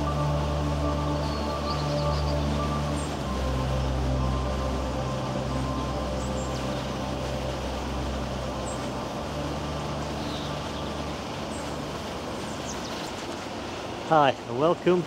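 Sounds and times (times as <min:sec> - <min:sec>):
low hum: 0:00.0 - 0:15.0
outdoor background hiss: 0:00.0 - 0:15.0
faint high bird chirps: 0:01.1 - 0:03.2.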